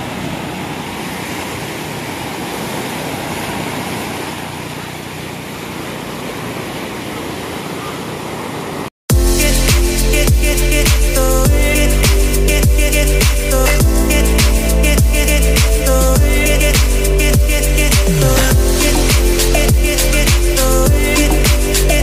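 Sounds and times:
loud music with a beat: 9.1s - 22.0s
steady rushing noise: 9.1s - 22.0s.

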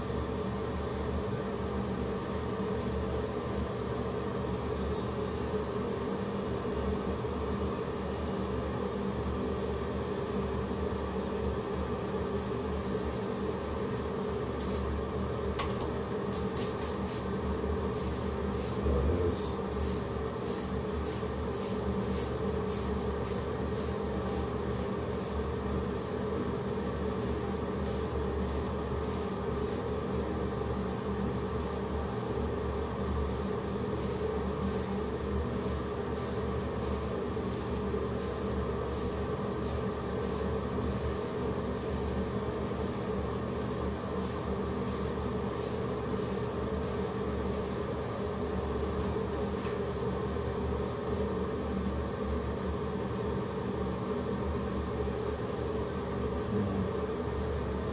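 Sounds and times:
blades rasping through hair: 16.3s - 25.4s.

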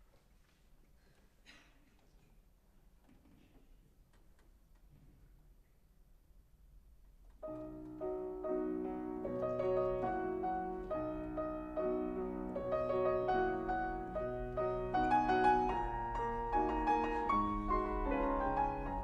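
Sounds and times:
grand piano music: 7.4s - 19.0s.

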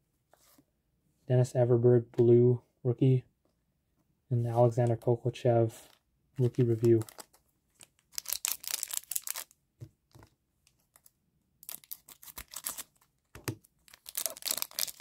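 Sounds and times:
foil wrapper crinkling: 6.6s - 9.5s, 11.6s - 13.0s, 13.9s - 15.0s
scissors snipping wrapper: 6.9s - 9.5s, 11.0s - 12.9s, 13.9s - 15.0s.

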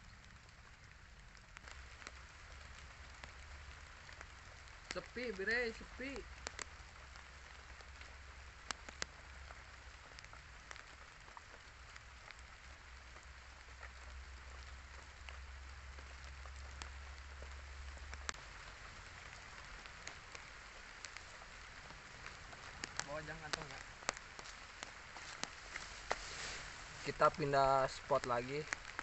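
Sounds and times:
raindrops ticking: 0.0s - 29.0s
drizzle hiss: 25.8s - 28.2s.

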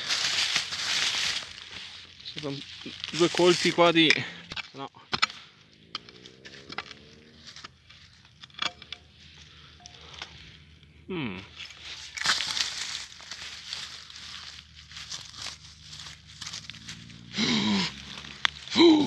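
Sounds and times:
hands rummaging through dry leaves: 0.0s - 4.1s, 11.5s - 19.0s
pick striking soil: 0.0s - 10.3s, 11.6s - 19.0s.

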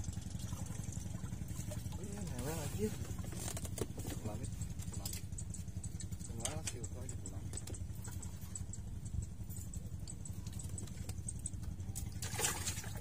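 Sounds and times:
low engine-like drone: 0.0s - 13.0s
faint light ticking: 4.2s - 12.1s.

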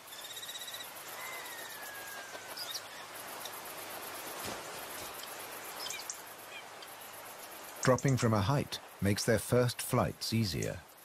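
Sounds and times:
insects hissing: 0.0s - 11.0s.

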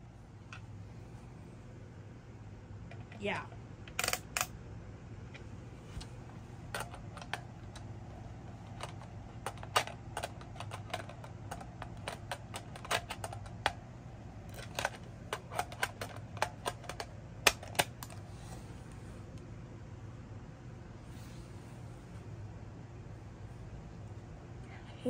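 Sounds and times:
faint low hum: 0.0s - 25.0s
plastic clicks and taps: 8.8s - 13.8s.

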